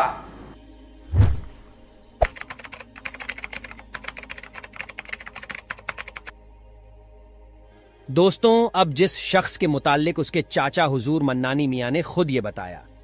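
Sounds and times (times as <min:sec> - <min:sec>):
low thump: 0:01.1 - 0:01.6.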